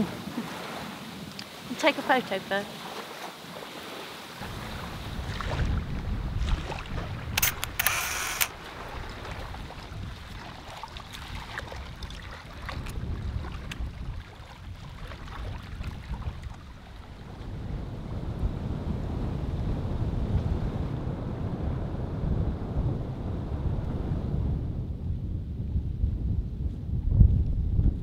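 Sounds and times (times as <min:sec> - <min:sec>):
wind buffeting microphone: 0:04.4 - 0:28.0
phone camera shutter: 0:07.4 - 0:08.5.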